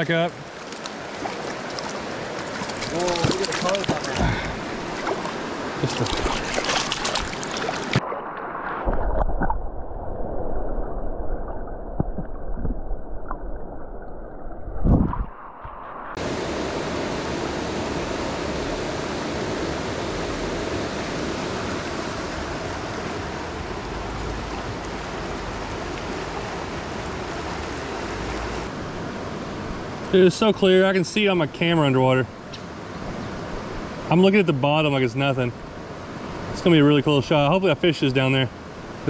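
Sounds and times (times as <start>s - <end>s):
creek rushing over rocks: 0.0s - 9.0s
water splashing surge: 1.1s - 14.0s.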